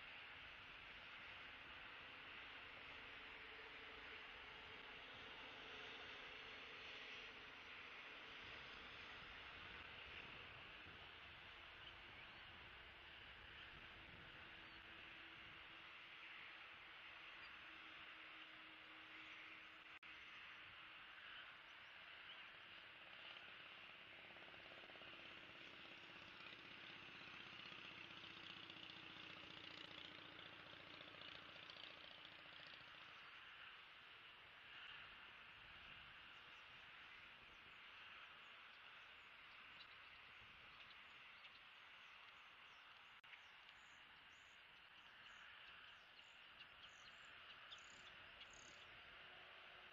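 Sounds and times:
faint engine running: 0.0s - 49.9s
high outdoor hiss: 0.0s - 49.9s
small birds chirping: 21.1s - 49.9s.

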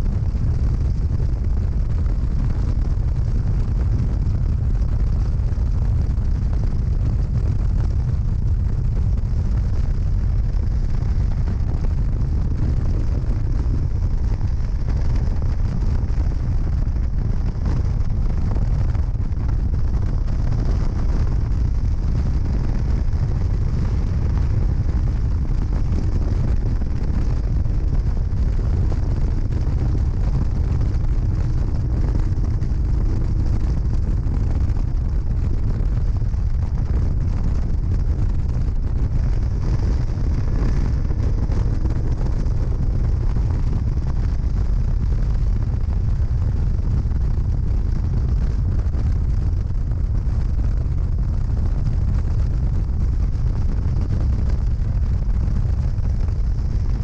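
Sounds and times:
wind buffeting microphone: 0.0s - 57.0s.

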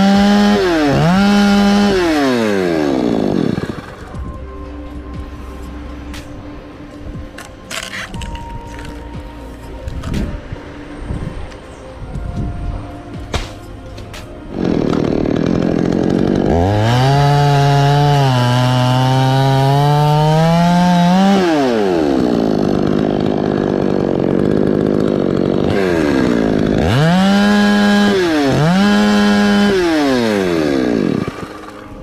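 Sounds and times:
chainsaw cutting wood: 0.0s - 4.3s, 7.4s - 9.0s, 14.5s - 32.0s.

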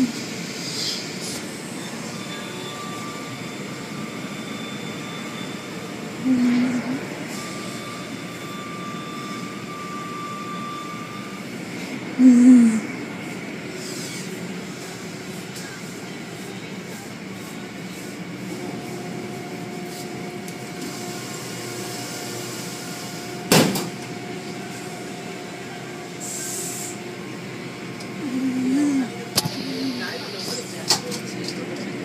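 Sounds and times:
car wash machinery running: 0.0s - 32.0s.

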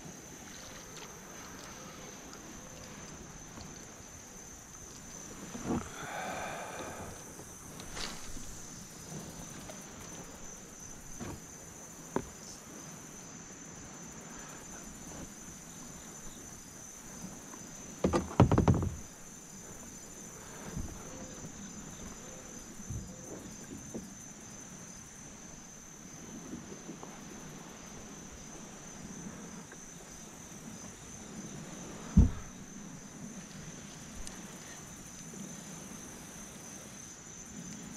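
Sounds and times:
insects droning: 0.0s - 37.9s
loud thumps: 18.0s - 19.0s.

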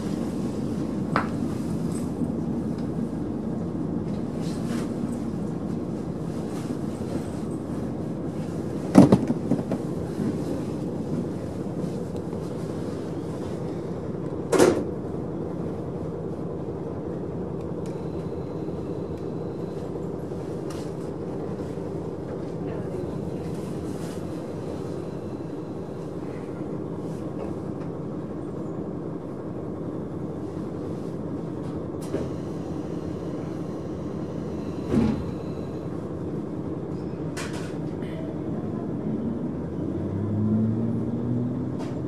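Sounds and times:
railcar engine hum: 0.0s - 42.0s
train running noise: 0.0s - 42.0s.

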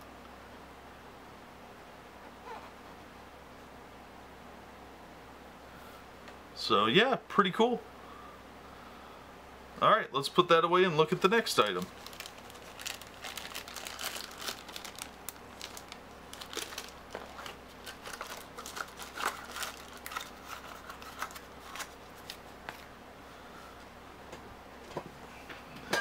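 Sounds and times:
plastic bag crinkling: 11.1s - 22.9s.

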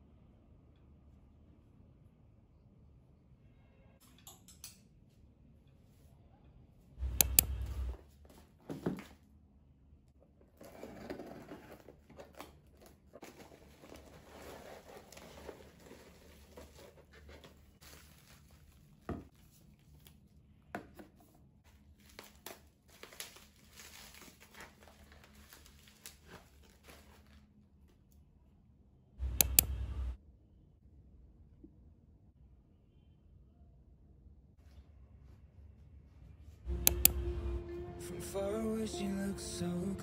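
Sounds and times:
scissors snipping tape: 7.0s - 8.0s, 29.3s - 29.8s, 36.8s - 37.2s
packaging crinkling and tearing: 10.6s - 20.3s, 21.8s - 27.5s.

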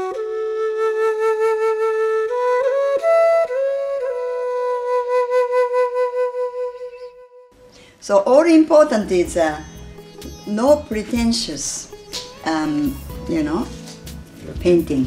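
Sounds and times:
solo flute playing: 0.0s - 7.7s.

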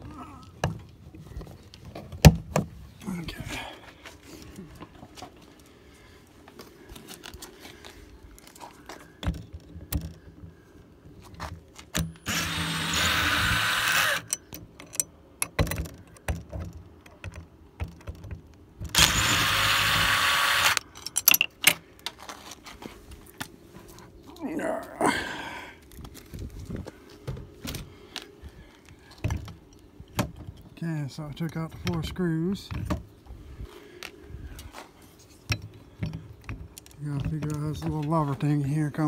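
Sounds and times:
cordless drill running: 12.2s - 14.3s, 18.9s - 20.8s.

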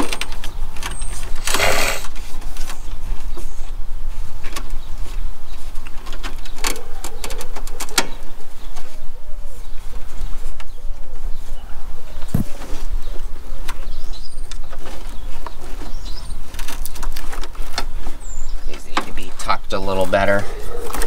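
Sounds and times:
dove cooing: 1.4s - 2.1s, 20.4s - 21.0s.

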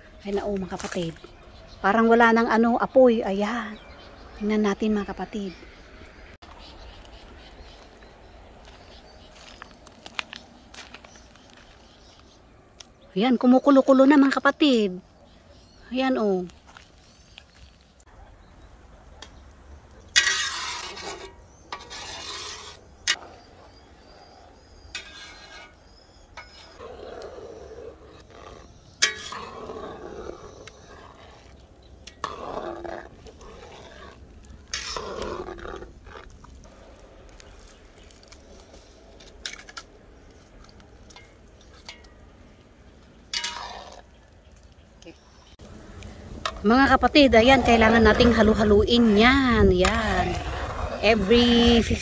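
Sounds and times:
metal spatula scraping wok: 20.1s - 23.2s, 24.8s - 26.9s, 28.1s - 36.3s, 43.3s - 44.2s.

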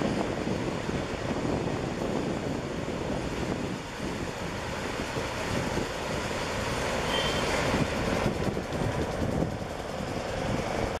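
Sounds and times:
freight train rolling over bridge: 0.0s - 11.0s
faint high squeal: 7.0s - 7.6s.

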